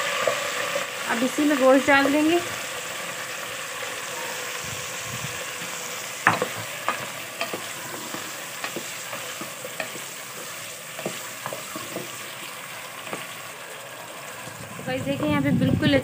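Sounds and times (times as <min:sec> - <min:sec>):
chicken sizzling in oil: 0:00.0 - 0:16.0
spoon knocking against pot: 0:06.2 - 0:10.1.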